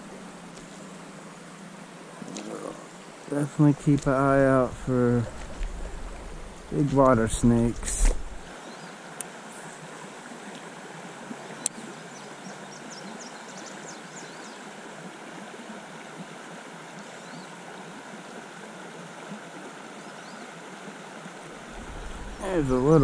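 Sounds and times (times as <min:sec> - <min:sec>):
river water rushing over rocks: 0:14.7 - 0:23.0.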